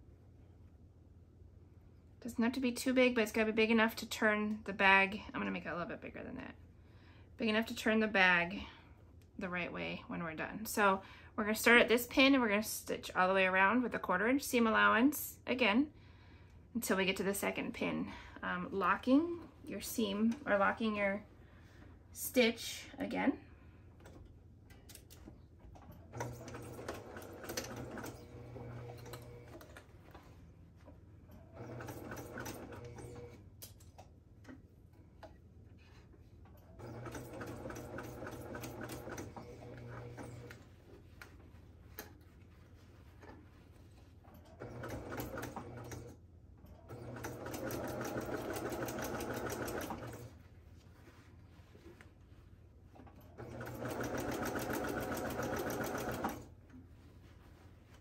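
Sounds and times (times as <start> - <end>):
sewing machine stitching: 25.9 - 29.8, 31.6 - 33.4, 36.6 - 40.6, 44.5 - 46.2, 46.8 - 50.3, 53.3 - 56.5.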